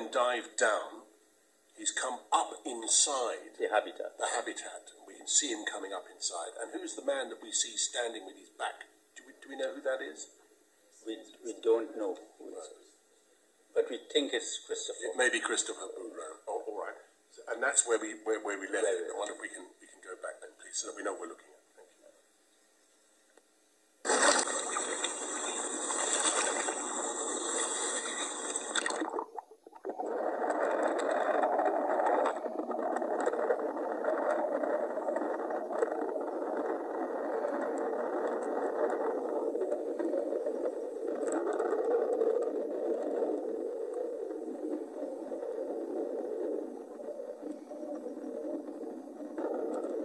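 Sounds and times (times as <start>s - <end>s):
bright rushing hiss: 24.0s - 29.2s
muffled underwater water rush: 24.0s - 50.0s.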